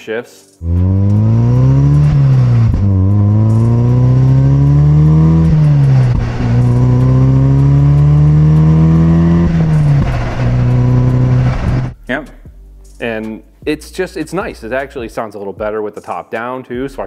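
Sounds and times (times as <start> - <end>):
car engine accelerating: 0.6 - 12.0
exhaust pops: 0.6 - 12.0.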